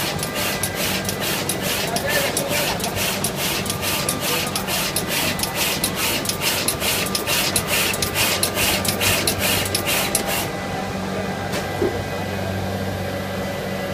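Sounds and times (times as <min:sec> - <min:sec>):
machine heads clicking rapidly: 0:00.0 - 0:10.4
steady machine hum: 0:00.0 - 0:13.9.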